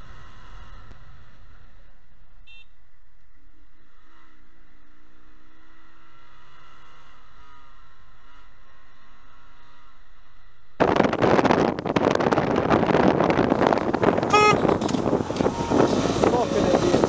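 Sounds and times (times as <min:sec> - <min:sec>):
motorcycle engine rumble: 0:00.0 - 0:17.0
wind noise: 0:10.8 - 0:17.0
short high beep: 0:14.3 - 0:14.6.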